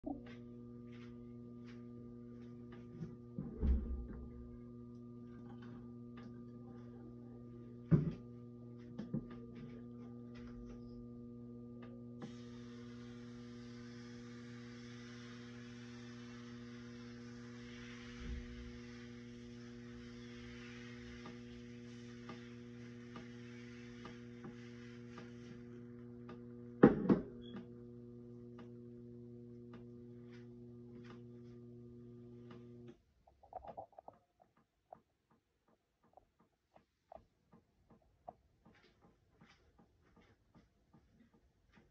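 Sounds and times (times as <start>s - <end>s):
steady electrical hum: 0.0s - 33.0s
batter sizzling on hot griddle: 12.2s - 25.8s.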